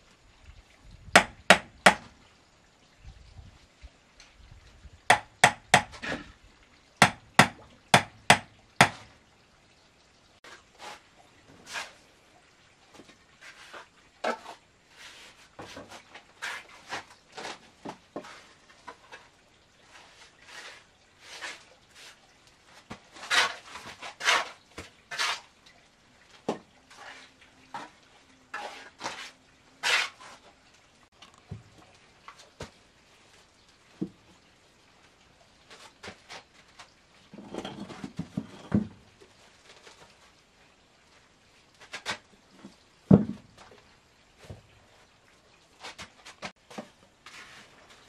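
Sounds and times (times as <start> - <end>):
trowel knocking on concrete blocks: 1.2 - 2.1, 5.1 - 6.2, 7.0 - 9.0
trowel scraping mortar: 23.1 - 25.5, 28.5 - 30.4.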